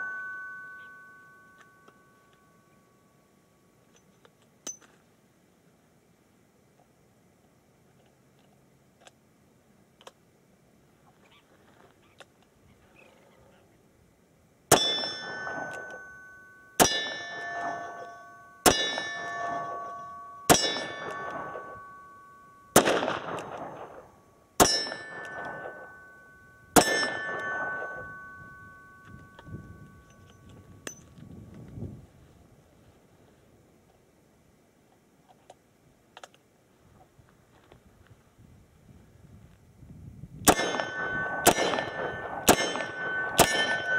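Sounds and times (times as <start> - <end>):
steel targets ringing: 0.0 - 3.5, 14.7 - 31.1, 40.5 - 43.9.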